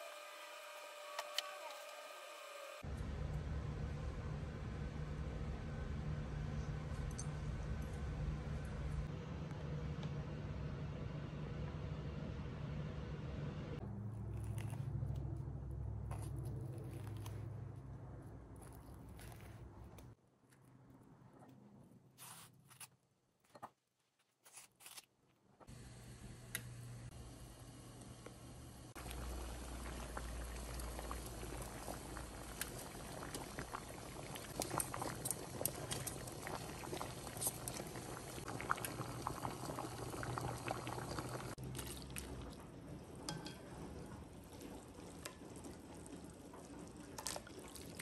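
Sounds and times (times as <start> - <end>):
water boiling in a pot: 25.7 - 48.0
tongs tapping a pot: 43.3 - 43.7
water dripping and splashing: 44.5 - 48.0.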